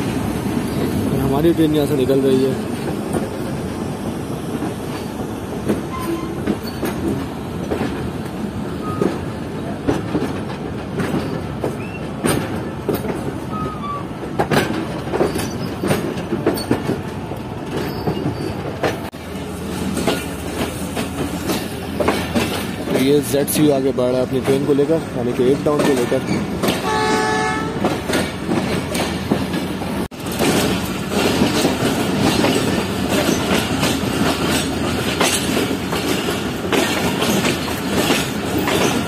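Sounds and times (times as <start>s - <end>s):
train rolling rumble: 0.0s - 39.0s
train wheels clacking on rails: 0.0s - 39.0s
wheel squeals: 5.9s - 7.1s, 13.5s - 14.1s, 15.2s - 16.8s, 17.7s - 18.8s.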